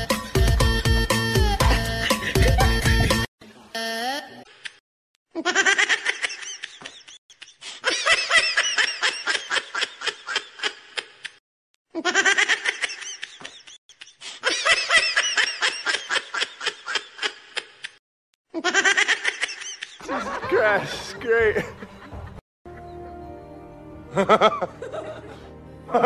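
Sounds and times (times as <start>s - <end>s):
high-pitched laughter: 1.4s - 3.2s, 5.4s - 22.3s.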